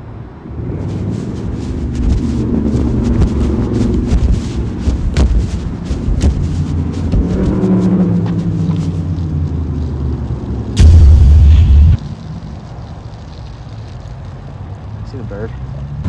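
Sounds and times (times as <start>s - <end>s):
wind buffeting microphone: 0.5s - 9.4s
loud blast of wind: 10.8s - 12.0s.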